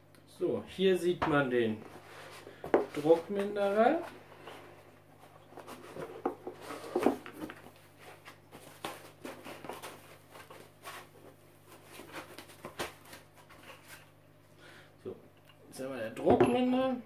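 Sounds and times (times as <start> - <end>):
foam and cardboard rustling: 5.2 - 14.0.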